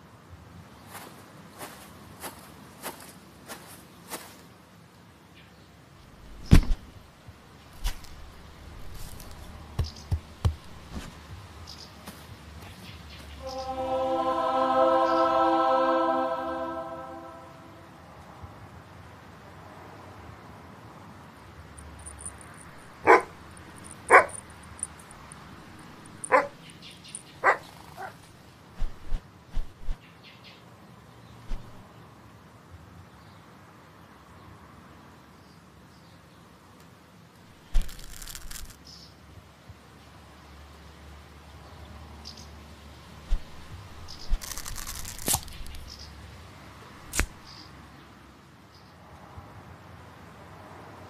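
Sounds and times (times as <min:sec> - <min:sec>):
heavy thud on grass: 0:06.4 - 0:06.9
faint high twinkling: 0:21.8 - 0:27.4.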